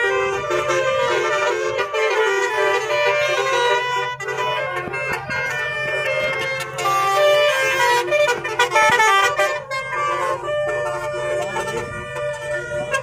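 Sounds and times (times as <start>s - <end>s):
musical air horns playing a tune: 0.0s - 13.0s.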